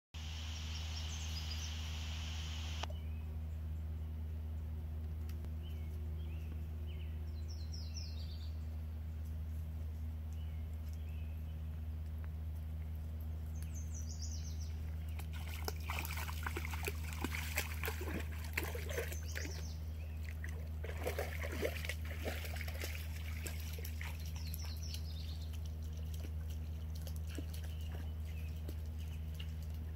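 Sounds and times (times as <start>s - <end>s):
low hum: 0.2s - 29.9s
water splashing and trickling: 14.7s - 29.9s.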